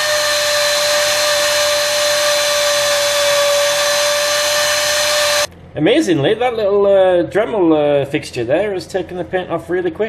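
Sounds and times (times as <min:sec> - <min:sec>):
rotary tool whining: 0:00.0 - 0:05.5.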